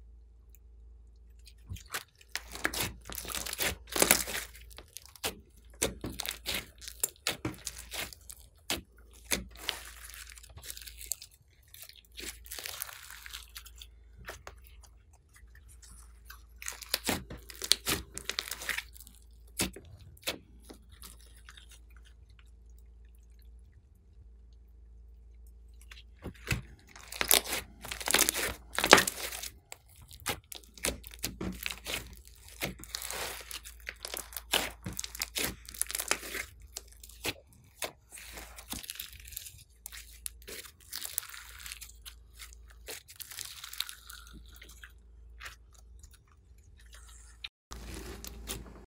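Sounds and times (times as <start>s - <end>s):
slime crackling and popping: 1.7s - 14.6s, 16.1s - 21.0s, 26.2s - 44.4s.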